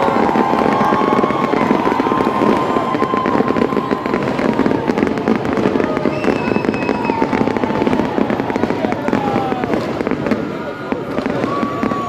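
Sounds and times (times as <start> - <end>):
fireworks crackling and popping: 0.0 - 12.0
thin whistling tone: 6.1 - 7.2.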